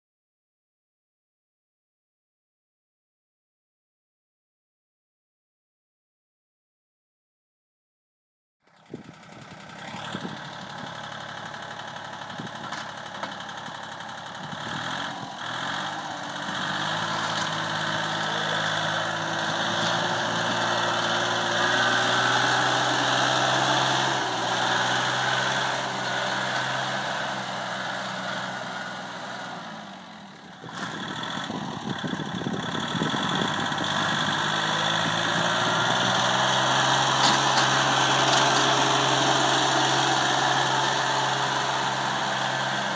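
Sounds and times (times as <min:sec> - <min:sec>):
tractor diesel engine running: 0:08.6 - 0:42.9.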